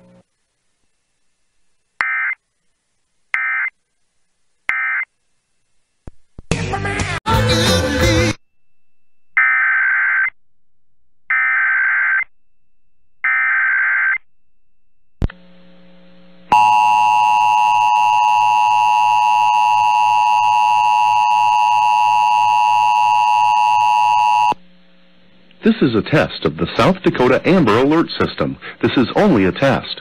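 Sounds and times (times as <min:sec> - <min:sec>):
loud steady dual tone: 0:08.4 - 0:25.4.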